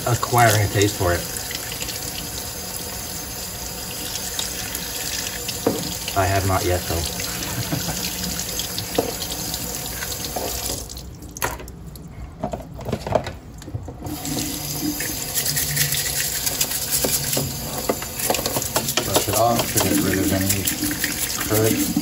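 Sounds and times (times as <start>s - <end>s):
faucet running into sink: 0.0s - 11.1s, 14.1s - 22.0s
brush scrubbing shell: 14.4s - 22.0s.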